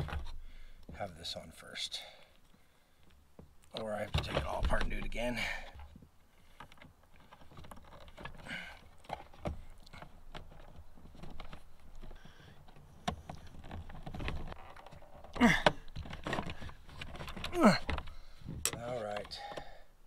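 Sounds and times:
cable clicks and rubbing: 3.6s - 19.7s.

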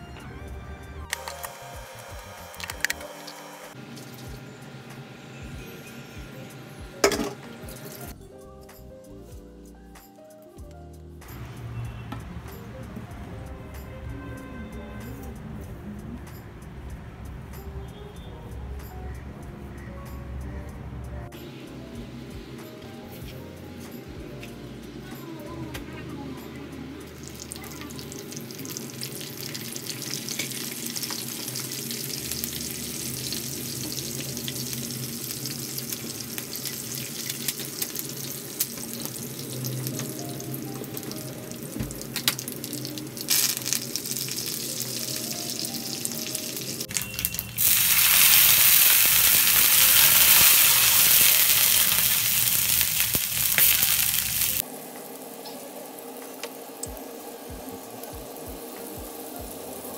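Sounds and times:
seeds crackling in hot oil: 1.1s - 4.5s, 26.8s - 59.9s
water hissing in hot pan: 26.2s - 59.9s.

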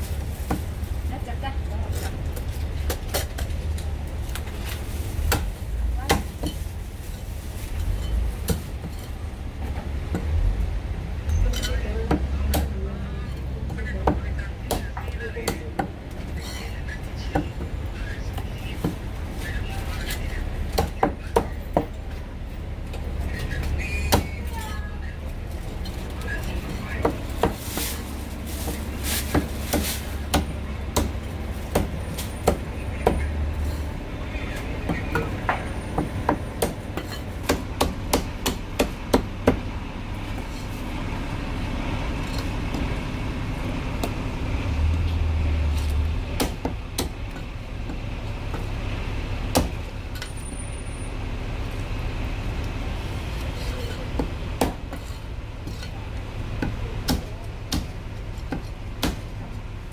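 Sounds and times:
cleaver chopping on wooden block: 58.5s - 59.2s.

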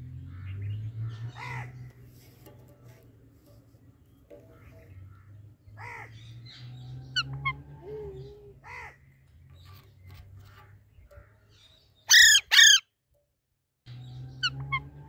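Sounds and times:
parakeets calling and chirping: 0.2s - 2.0s, 4.2s - 12.8s, 13.9s - 15.0s
parakeet harsh screeches: 12.1s - 12.8s.

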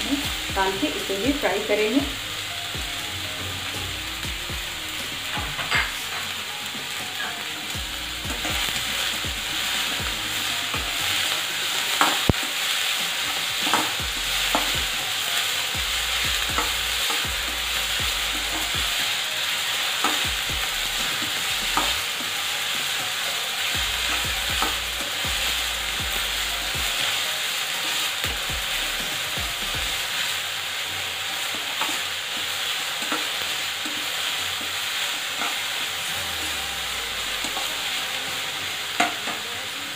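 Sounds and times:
vegetables sizzling in hot oil: 0.0s - 39.9s.

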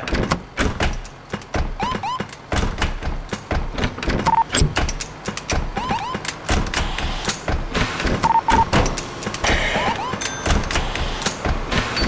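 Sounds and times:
percussive beat of knocks and thuds: 0.0s - 9.6s.

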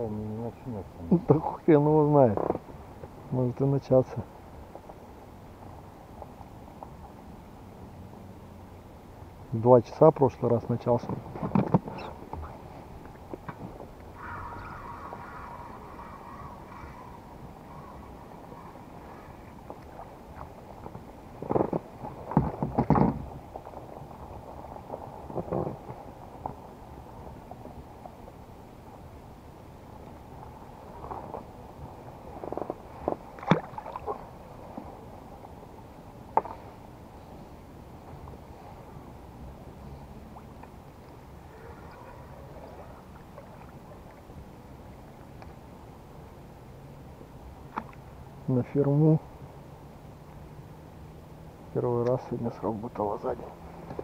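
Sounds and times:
wind: 0.0s - 54.0s
knocks and thumps of fish handling: 11.4s - 12.5s, 21.4s - 23.3s
steady low rumble: 12.0s - 22.3s
rushing water: 32.0s - 35.3s, 39.5s - 46.5s.

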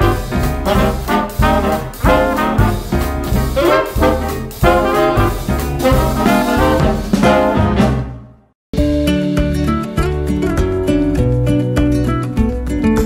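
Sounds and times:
swing music with brass: 0.0s - 9.5s.

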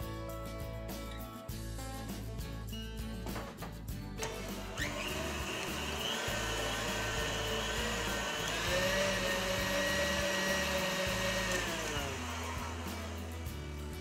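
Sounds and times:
stand mixer motor whining: 4.2s - 14.0s
whisk beating cream: 4.4s - 14.0s.

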